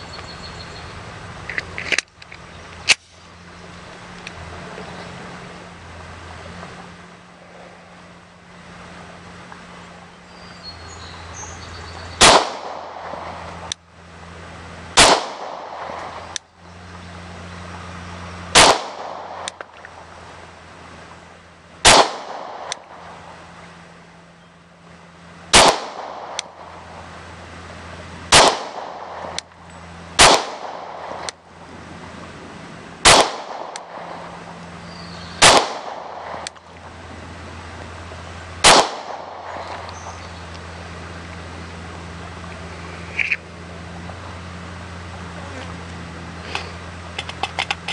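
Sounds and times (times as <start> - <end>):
pistol shots: 12.2 - 13.3, 15.0 - 16.3, 18.5 - 19.6, 21.8 - 22.9, 25.5 - 26.6, 28.3 - 29.4, 30.2 - 31.3, 33.0 - 34.2, 35.4 - 36.5, 38.6 - 39.8.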